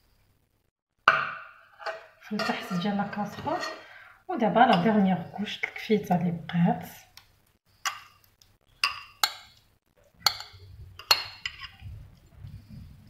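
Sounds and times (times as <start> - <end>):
metal spoon clinking against bowl: 4.6 - 5.0, 8.8 - 9.6, 10.2 - 11.8.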